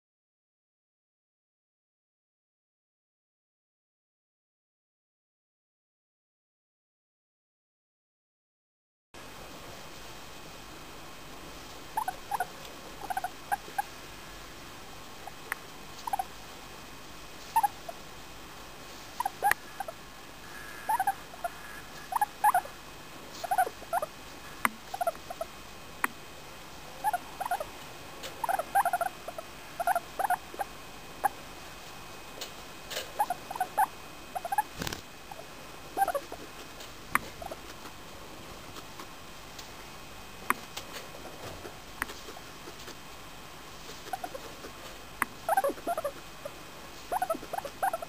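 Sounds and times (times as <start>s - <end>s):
guinea pig soft calls: 11.6s - 14.1s, 15.2s - 16.4s, 17.4s - 18.0s, 18.9s - 26.2s, 27.0s - 31.4s, 32.4s - 37.9s, 40.5s - 43.0s, 43.8s - 48.0s.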